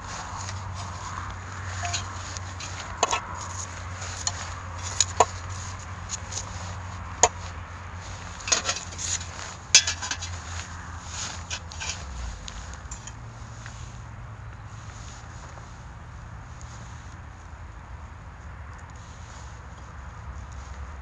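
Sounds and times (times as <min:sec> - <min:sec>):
metal tongs clacking on grill: 0:01.8 - 0:03.5, 0:08.5 - 0:10.4.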